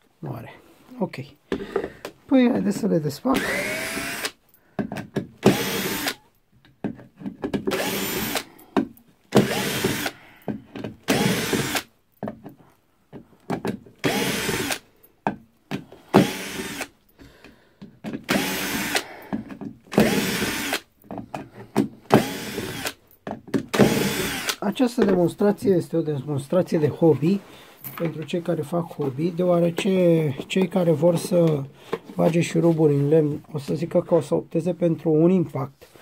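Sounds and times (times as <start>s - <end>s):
cordless drill motor whine: 3.4s - 4.4s, 5.5s - 6.2s, 7.7s - 8.5s, 9.4s - 10.2s, 11.1s - 11.9s, 14.0s - 14.8s, 16.2s - 16.9s, 18.3s - 19.0s, 20.0s - 20.8s, 22.1s - 23.0s, 23.7s - 24.6s.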